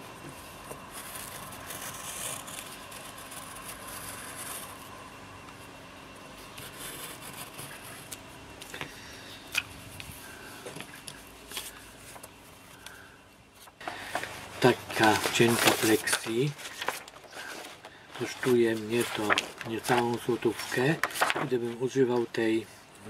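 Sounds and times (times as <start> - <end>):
blade scraping through paper: 0.9 - 4.8, 14.0 - 22.0
paper handling: 13.6 - 22.4.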